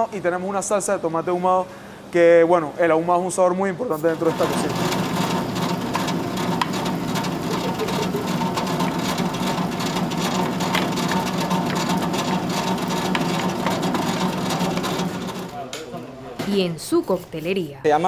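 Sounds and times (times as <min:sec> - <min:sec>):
hand-cranked mill grinding corn: 0:04.1 - 0:15.6.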